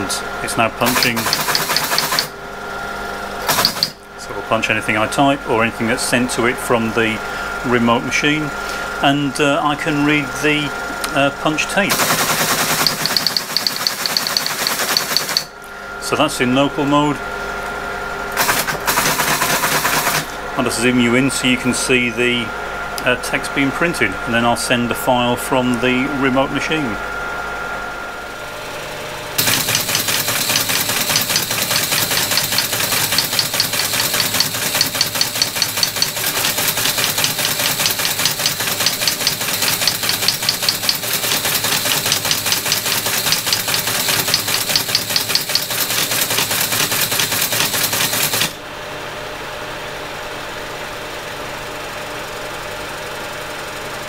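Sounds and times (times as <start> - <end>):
teleprinter motor humming: 0.0 - 48.6
teleprinter print mechanism clatter: 0.8 - 2.3, 3.4 - 4.0, 11.9 - 15.5, 18.4 - 20.3, 29.4 - 48.6.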